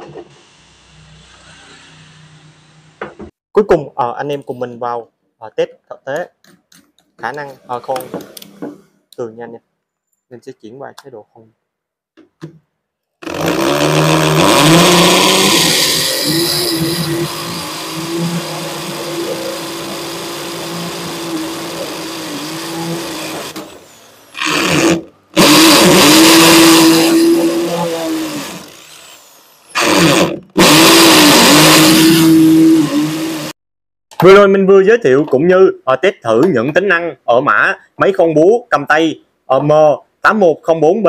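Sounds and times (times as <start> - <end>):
hammer drill boring into concrete: 13.2 - 33.5.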